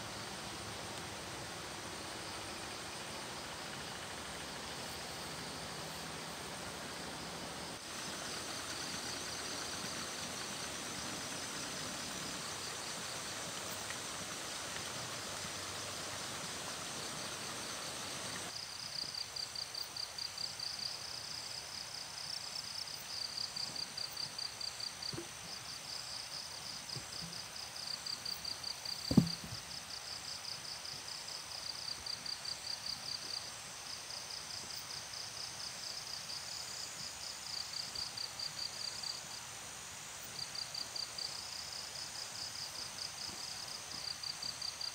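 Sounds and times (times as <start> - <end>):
insects trilling: 0.0 - 21.6, 22.2 - 44.9
steady hiss: 0.0 - 44.9
sharp knock: 29.1 - 29.6.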